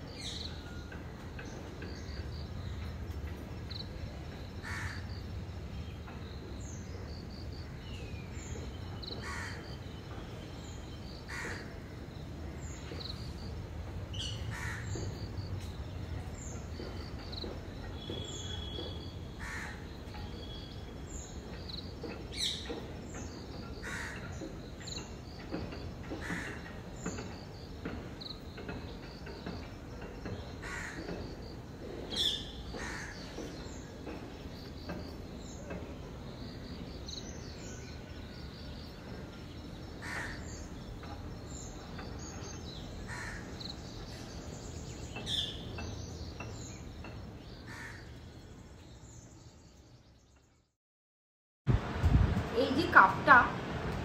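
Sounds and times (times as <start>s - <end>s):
crows cawing: 4.6s - 5.0s, 11.3s - 11.7s, 14.5s - 14.9s, 19.4s - 19.8s, 23.8s - 24.3s, 30.6s - 31.0s, 40.0s - 40.4s, 43.1s - 43.5s, 47.7s - 48.1s.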